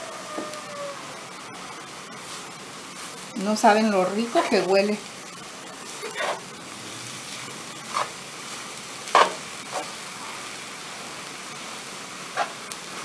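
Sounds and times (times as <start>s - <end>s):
mince sizzling in a frying pan: 0.0s - 13.0s
spatula scraping a pan: 7.8s - 8.2s, 9.1s - 10.5s.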